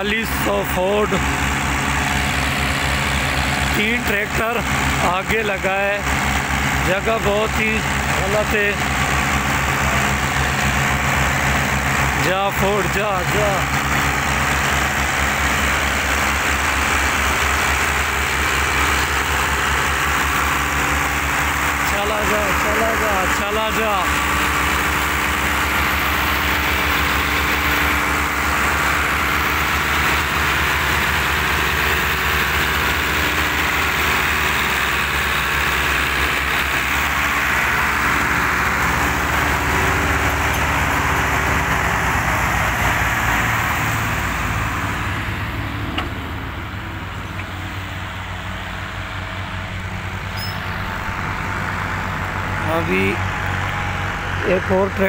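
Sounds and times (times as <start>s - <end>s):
diesel tractor engines under load: 0.0s - 55.0s.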